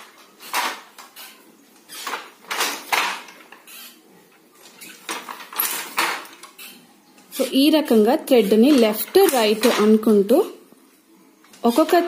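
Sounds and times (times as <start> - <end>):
handloom shuttle and beater clacking: 4.6 - 7.6, 8.4 - 10.1.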